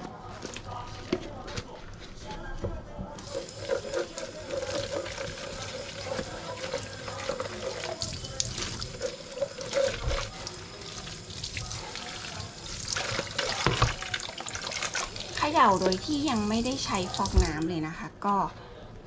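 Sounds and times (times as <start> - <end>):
tap running into steel sink: 13.4 - 14.1.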